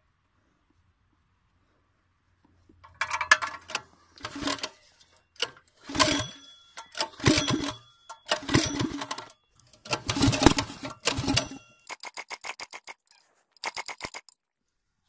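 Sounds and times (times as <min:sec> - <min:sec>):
recoil starter rattling crank: 0:05.8 - 0:06.4, 0:07.0 - 0:14.4.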